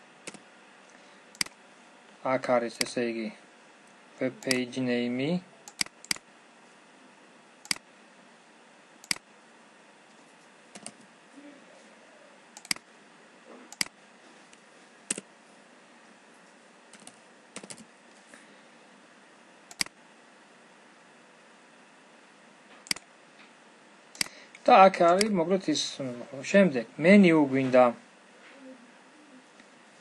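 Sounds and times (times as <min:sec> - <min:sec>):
faint steady hiss: 0:00.0 - 0:30.0
mouse and keyboard clicks: 0:04.4 - 0:04.6, 0:05.7 - 0:06.2, 0:10.8 - 0:11.0, 0:12.6 - 0:12.8, 0:13.7 - 0:14.0.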